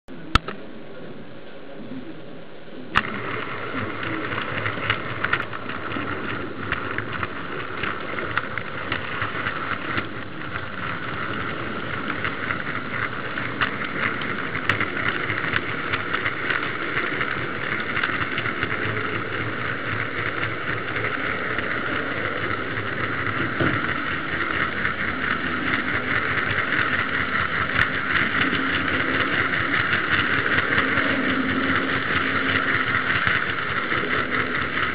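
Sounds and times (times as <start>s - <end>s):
click: 0.3s - 0.6s
model train wheels rattling on rails: 2.8s - 34.9s.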